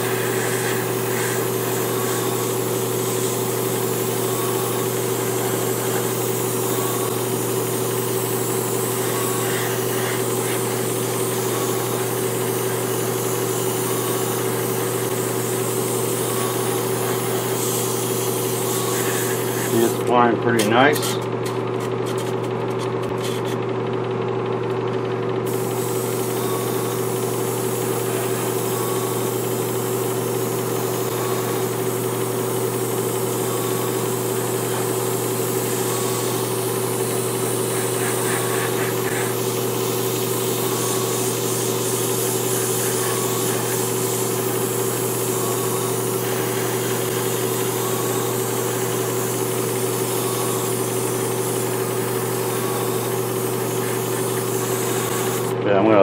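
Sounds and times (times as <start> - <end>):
airbrush hissing: 0.0 - 23.6, 25.5 - 55.6
air compressor humming: 0.0 - 56.0.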